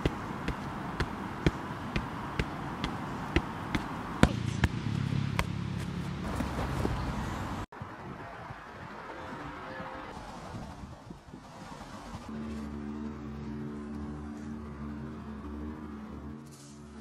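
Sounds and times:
football tapping on shoe: 0:00.0 - 0:04.8
ball kick: 0:00.0 - 0:06.6.

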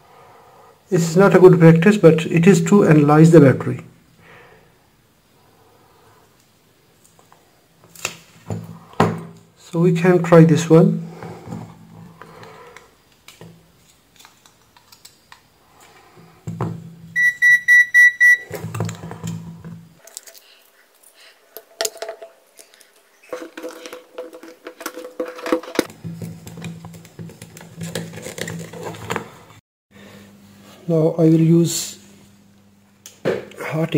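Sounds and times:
multimeter short high beeps: 0:17.2 - 0:18.5.

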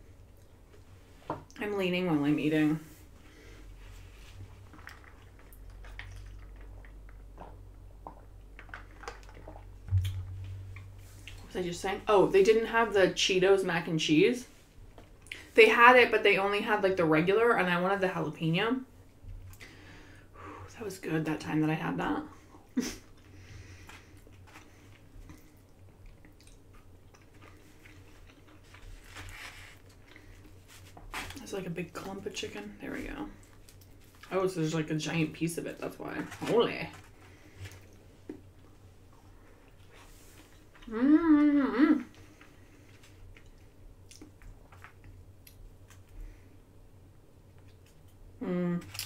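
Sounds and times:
low room hum: 0:00.0 - 0:49.0
person chewing food: 0:04.4 - 0:11.5, 0:23.0 - 0:31.0, 0:42.1 - 0:46.2.

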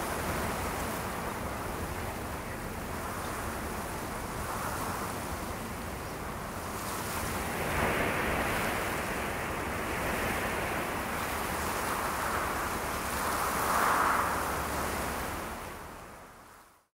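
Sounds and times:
steady rushing noise: 0:06.7 - 0:16.3.

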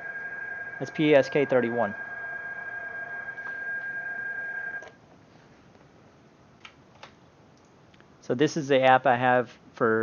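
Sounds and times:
steady whining digital tone: 0:00.0 - 0:04.9.

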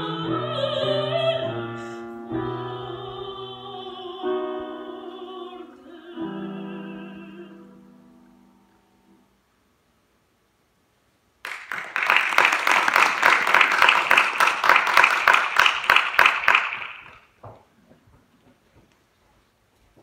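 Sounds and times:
audience applauding: 0:11.4 - 0:17.3.

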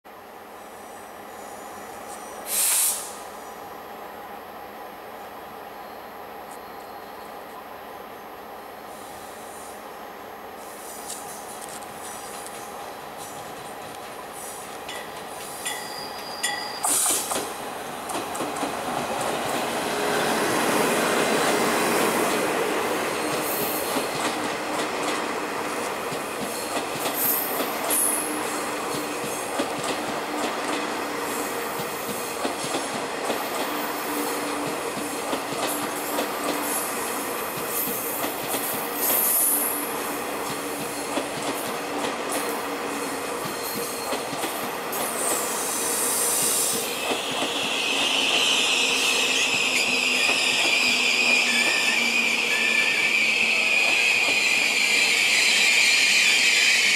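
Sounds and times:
train wheels rolling on rails: 0:08.5 - 0:56.9
high wheel squeal: 0:15.5 - 0:17.3, 0:45.2 - 0:56.9.

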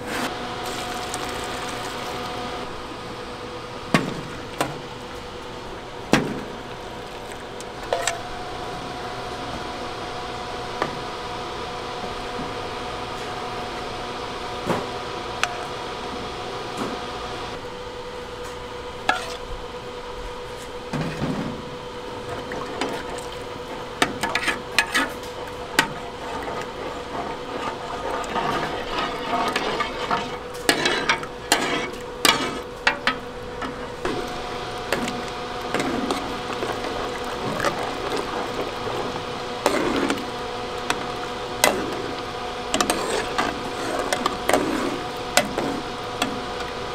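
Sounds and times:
ladles stirring in metal pan: 0:00.0 - 0:02.6, 0:19.1 - 0:19.4, 0:22.2 - 0:46.9
steady machine hum: 0:00.0 - 0:46.9
liquid sloshing: 0:22.2 - 0:46.4.

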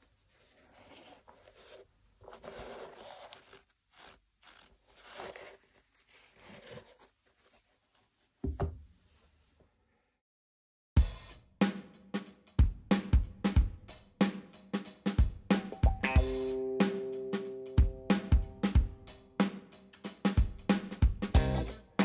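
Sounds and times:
rustling and scraping: 0:00.0 - 0:09.7.

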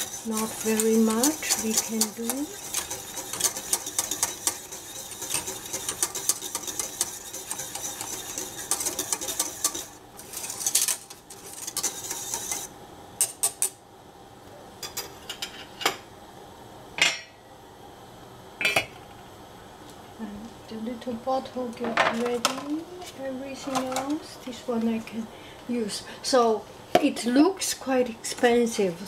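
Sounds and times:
whisk clicking and scraping in pan: 0:00.0 - 0:12.7.

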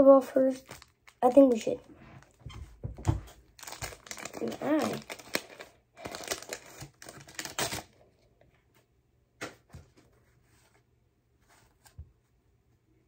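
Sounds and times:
paper wrapper crinkling and tearing: 0:00.5 - 0:01.6, 0:03.3 - 0:08.0
cards rustling: 0:00.5 - 0:02.4, 0:03.3 - 0:08.0.

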